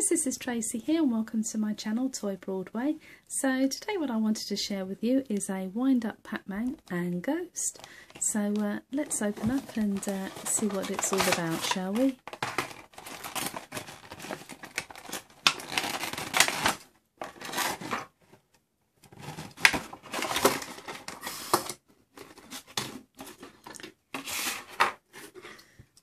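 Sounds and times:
plastic blister tray crinkling: 7.7 - 18.4, 19.1 - 25.6.

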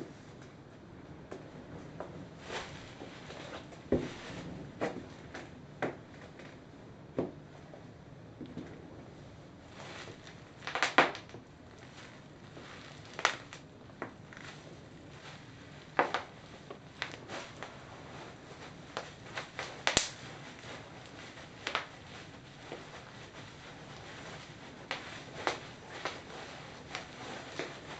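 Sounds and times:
plastic crinkling: 9.7 - 27.9
bubble wrap popping: 9.8 - 27.9.

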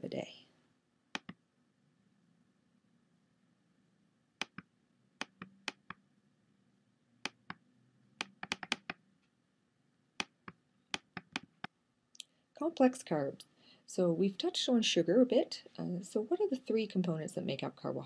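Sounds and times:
computer keys clicking: 1.1 - 1.4, 4.4 - 6.0, 8.2 - 9.0, 10.2 - 11.7.

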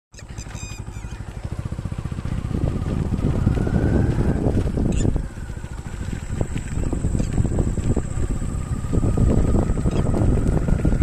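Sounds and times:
faint rising whine: 0.2 - 11.0
small engine running: 0.2 - 11.0.

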